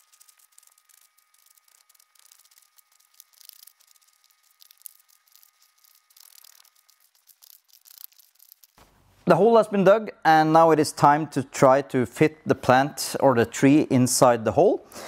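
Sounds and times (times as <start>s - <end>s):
soil being dug: 0.0s - 9.1s
faint steady high whine: 0.0s - 15.0s.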